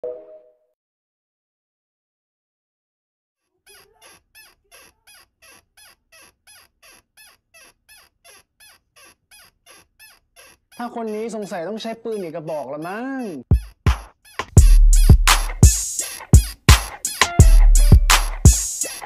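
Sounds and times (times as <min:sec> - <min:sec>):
high-pitched squeaks: 0:03.6 - 0:15.4, 0:16.0 - 0:19.0.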